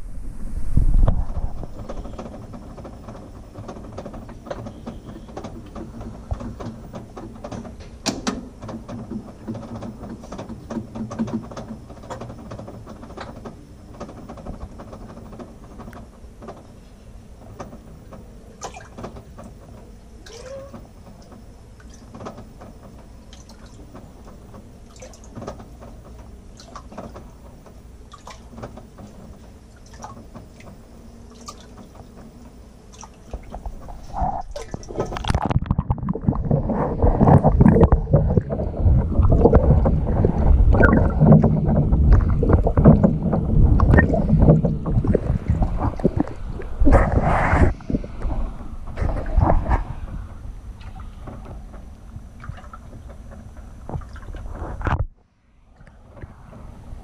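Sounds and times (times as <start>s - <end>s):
water churning: 0.0s - 57.0s
small clicks and drips: 17.4s - 46.7s, 50.8s - 55.1s
water filling washing machine drum: 18.6s - 47.8s.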